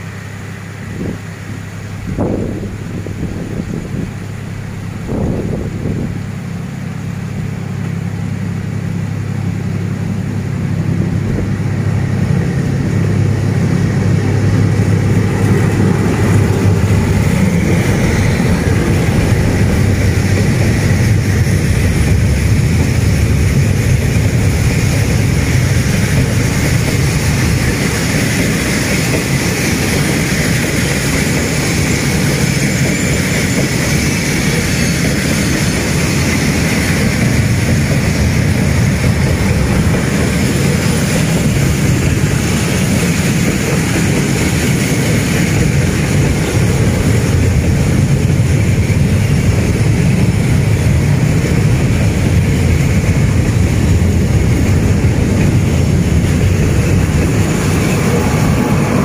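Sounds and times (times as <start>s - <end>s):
diesel locomotive engines humming: 0.0s - 59.0s
freight wagons rolling on rails: 12.1s - 59.0s.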